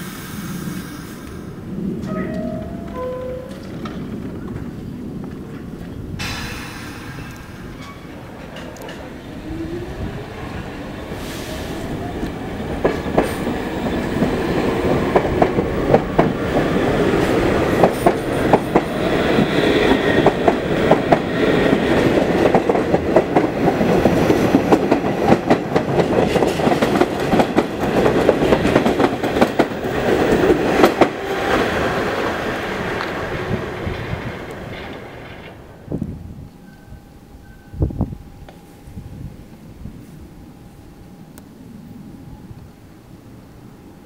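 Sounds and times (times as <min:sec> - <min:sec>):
wheels clacking over rail joints: 0:01.9 - 0:06.4, 0:07.1 - 0:09.4, 0:12.0 - 0:35.6.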